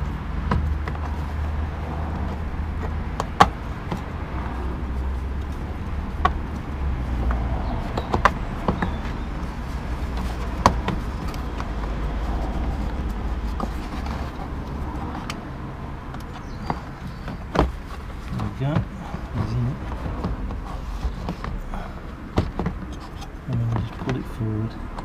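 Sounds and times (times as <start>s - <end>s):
steady low rumble: 0.0s - 25.0s.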